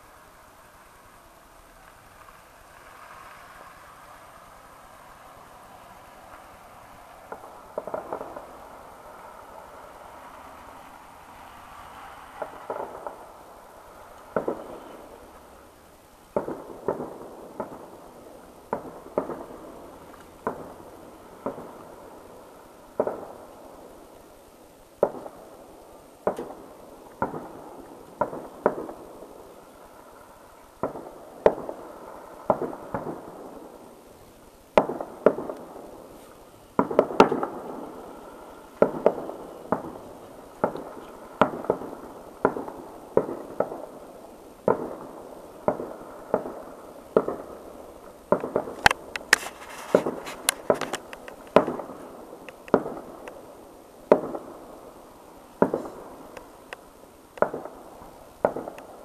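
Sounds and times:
firework shells bursting: 4.9s - 15.7s, 34.7s - 44.0s, 44.6s - 53.5s, 55.5s - 59.0s.

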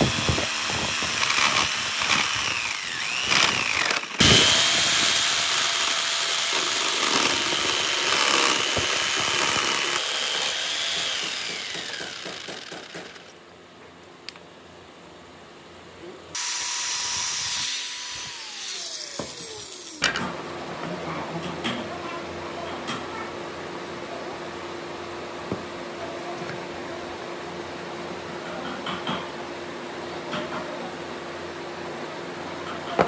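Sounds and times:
electric jigsaw cutting wood: 0.0s - 13.4s, 16.4s - 20.1s.

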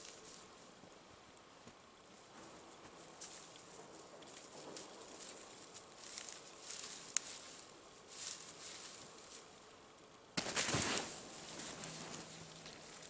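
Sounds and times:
spruce boughs rustling: 0.0s - 0.8s, 1.4s - 9.7s, 10.4s - 13.0s
twigs crackling: 3.2s - 9.5s, 10.4s - 13.0s.

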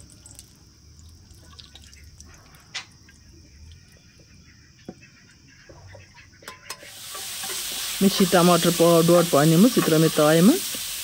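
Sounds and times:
oil dripping and trickling: 0.0s - 4.3s
ladle scraping metal: 6.4s - 8.6s.

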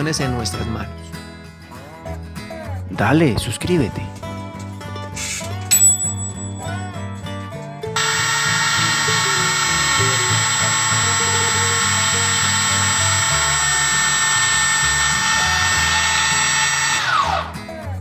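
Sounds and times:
electric motor high-pitched whine: 8.0s - 17.5s.

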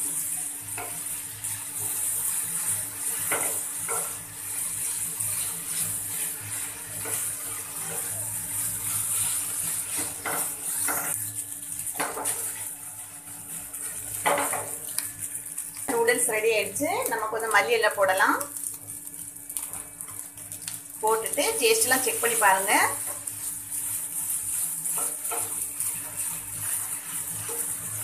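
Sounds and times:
noodles sizzling in a pan: 0.0s - 28.0s
wooden spatula scraping a pan: 0.1s - 11.2s, 11.9s - 15.6s, 21.4s - 28.0s.

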